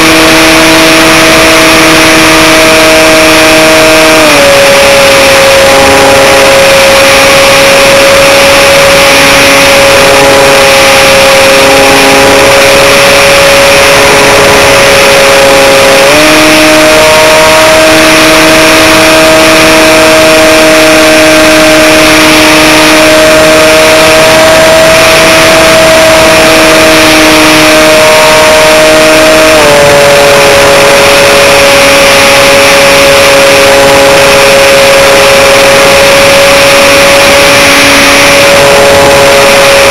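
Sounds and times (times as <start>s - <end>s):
electric motor and propeller whine: 0.0s - 39.9s.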